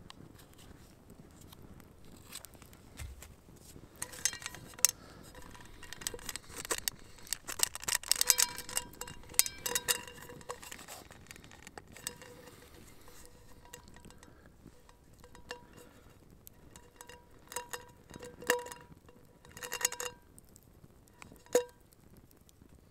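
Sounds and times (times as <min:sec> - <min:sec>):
campfire crackling: 0:00.0 - 0:22.9
metal pot clinking: 0:04.0 - 0:20.3, 0:21.2 - 0:21.9.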